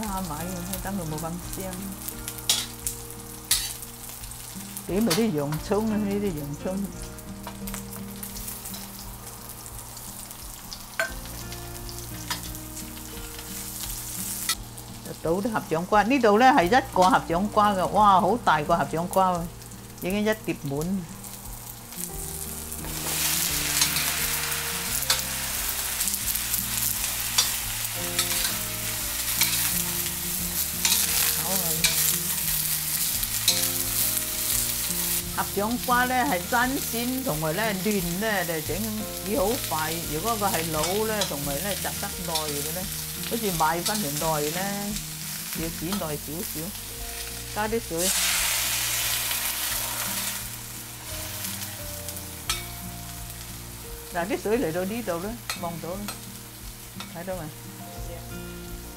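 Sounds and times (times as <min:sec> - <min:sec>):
vegetables sizzling in a wok: 0:00.0 - 0:58.9
metal spatula scraping a pan: 0:02.4 - 0:02.8, 0:03.5 - 0:03.8, 0:22.8 - 0:29.8, 0:30.8 - 0:33.6
water hissing in hot wok: 0:06.5 - 0:15.1, 0:20.8 - 0:57.4.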